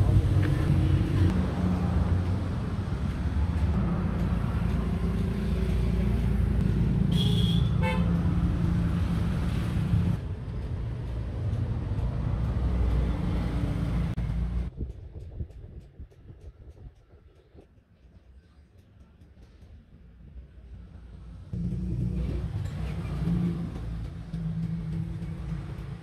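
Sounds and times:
traffic engine hum: 0.0 - 16.7, 17.8 - 26.0
vehicle horn toot: 7.1 - 8.1.

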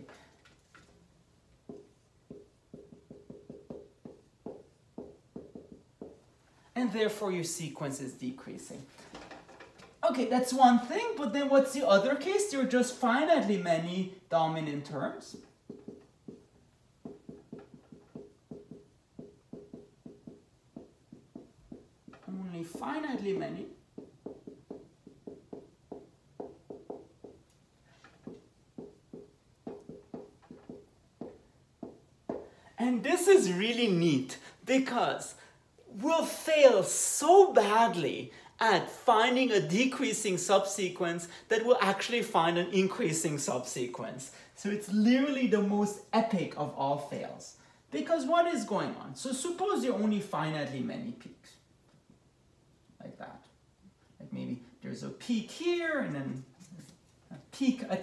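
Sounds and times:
marker squeaking on whiteboard: 15.3 - 32.5.

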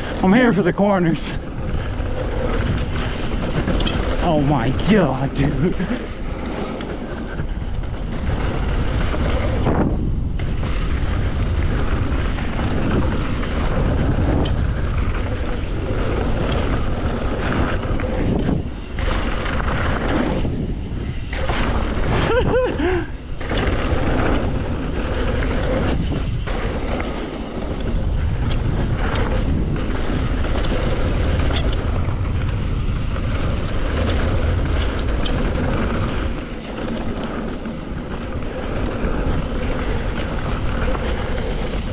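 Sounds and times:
bike rattling over dirt trail: 0.0 - 41.9
wind buffeting microphone: 0.0 - 41.9.

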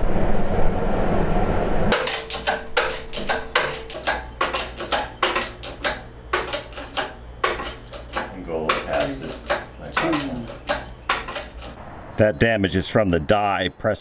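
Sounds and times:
low rumbling noise: 0.0 - 2.0
metallic clicks and clanks: 1.9 - 11.8.

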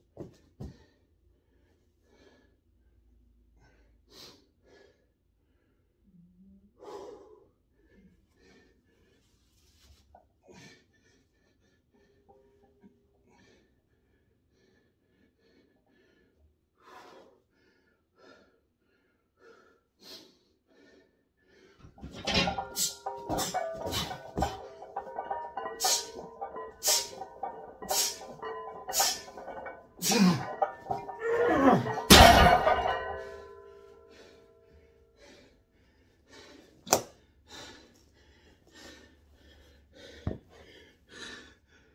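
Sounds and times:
barbell clanging on steel: 21.9 - 34.2.

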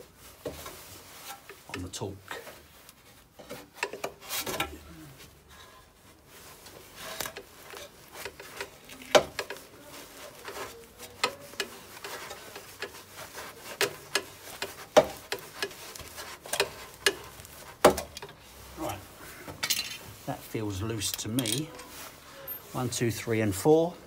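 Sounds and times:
bit clicking and scraping on metal: 10.4 - 18.4.

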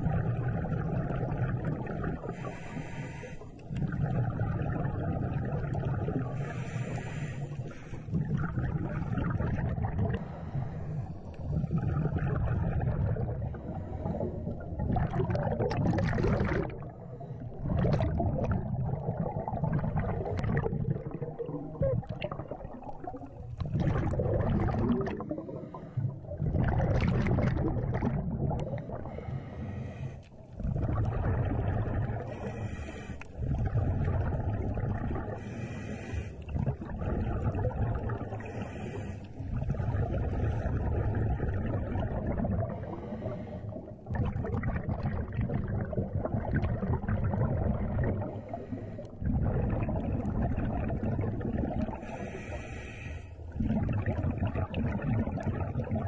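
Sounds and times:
gurgle of exhaled bubbles: 0.0 - 56.0.

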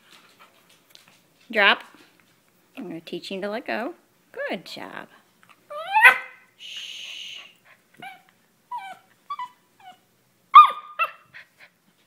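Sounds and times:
puppy whining and yipping: 5.7 - 6.4, 8.0 - 11.5.

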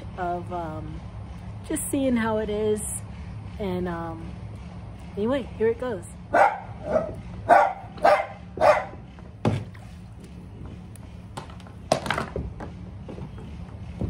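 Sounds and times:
dog barking: 6.3 - 9.0.

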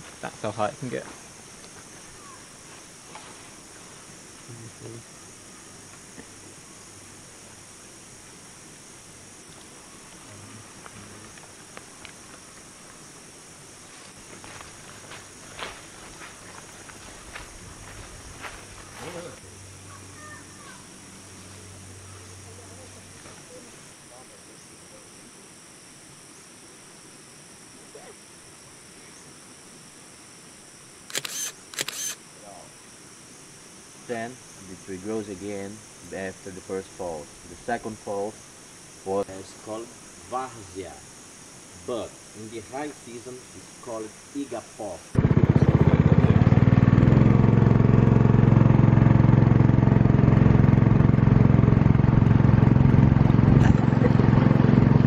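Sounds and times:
insects droning: 0.0 - 55.0
small boat motor running: 45.2 - 55.0.

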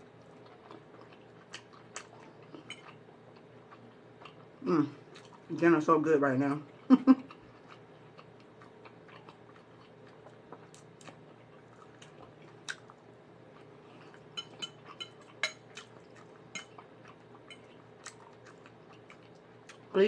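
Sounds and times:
person chewing: 0.0 - 5.5, 6.7 - 19.9
fork clinking on plate: 14.4 - 15.7.

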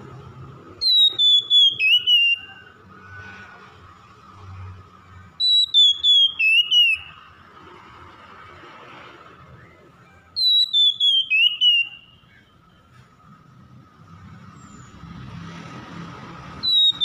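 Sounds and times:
bird singing whistled phrases: 0.8 - 2.7, 5.4 - 7.3, 9.6 - 12.5, 16.6 - 17.0.

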